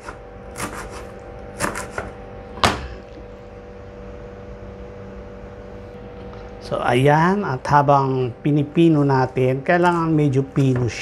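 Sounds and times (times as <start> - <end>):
knife chopping on plastic board: 0.0 - 2.9
faint steady hum: 0.0 - 11.0.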